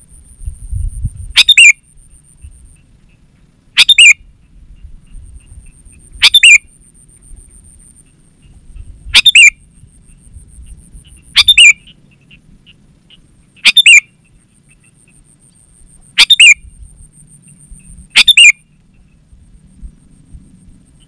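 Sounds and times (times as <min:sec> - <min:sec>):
bulbul calling: 0:00.8 - 0:19.4.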